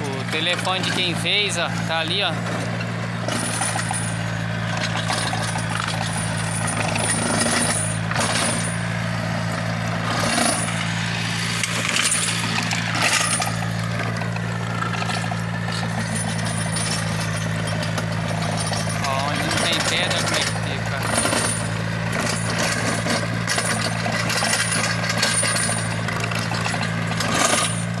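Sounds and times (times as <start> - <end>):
tractor diesel engine running: 0.0 - 28.0
implement knocking on stones: 0.2 - 8.9, 10.0 - 28.0.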